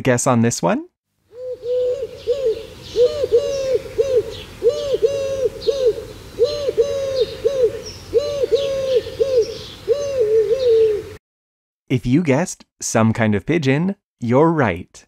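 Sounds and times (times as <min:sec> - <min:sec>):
dove cooing: 0:01.3 - 0:11.2
faint bird chirps: 0:01.4 - 0:11.0.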